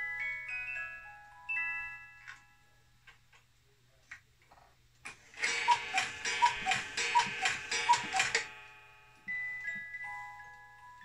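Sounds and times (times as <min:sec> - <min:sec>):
clock hands clicking: 0:05.4 - 0:08.5
two-note cuckoo clock calls: 0:05.4 - 0:08.5.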